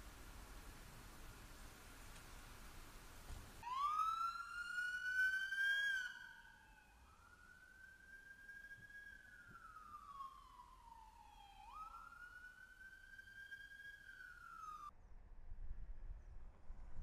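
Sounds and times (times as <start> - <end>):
police siren wailing: 3.6 - 14.9.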